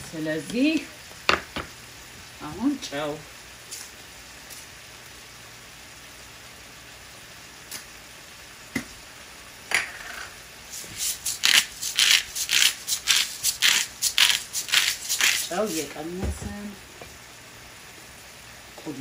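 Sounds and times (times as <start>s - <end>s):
salt shaker rattling: 10.7s - 16.0s.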